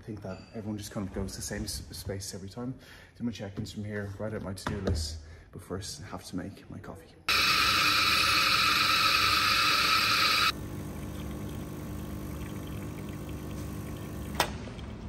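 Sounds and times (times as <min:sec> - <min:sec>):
coffee grinder grinding: 0:07.3 - 0:13.8
espresso machine pump hum: 0:07.3 - 0:14.4.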